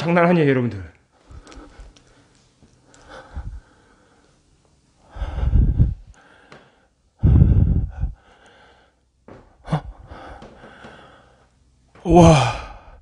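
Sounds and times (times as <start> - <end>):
man breathing out heavily: 5.0 - 9.0, 9.6 - 11.5, 12.2 - 13.0.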